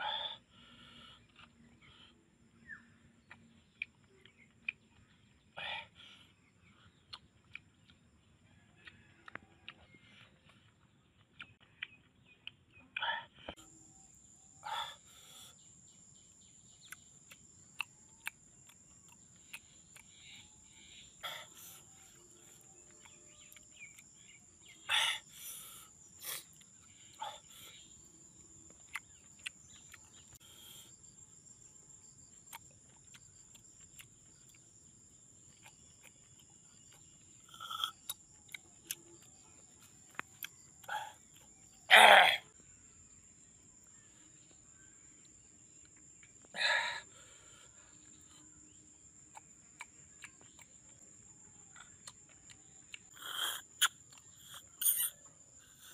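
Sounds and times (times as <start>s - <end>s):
mouth eating noises: 6.8s - 8.1s, 16.6s - 31.0s, 32.3s - 42.5s, 45.8s - 55.9s
high-pitched insect trill: 13.6s - 55.9s.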